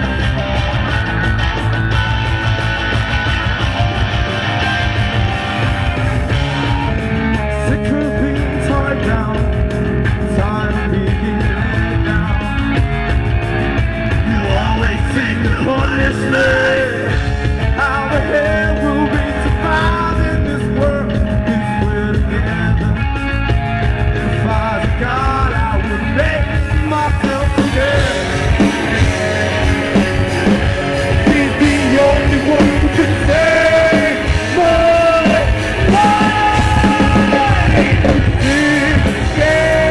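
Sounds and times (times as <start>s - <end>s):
bass guitar: 0.0s - 39.9s
drums: 0.0s - 39.9s
electric guitars: 0.0s - 39.9s
person singing: 24.2s - 39.9s.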